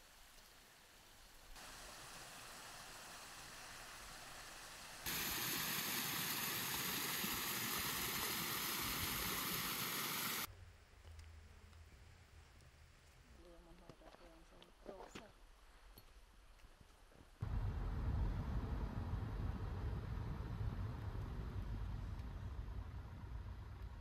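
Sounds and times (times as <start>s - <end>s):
waterfall splashing over rocks: 1.6s - 10.5s.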